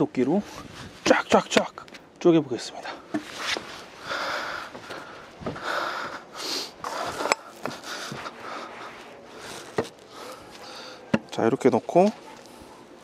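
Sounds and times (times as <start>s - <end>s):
rustling movement: 3.1s - 4.1s, 6.8s - 13.0s
footsteps on wooden steps: 4.7s - 6.2s, 6.9s - 8.4s.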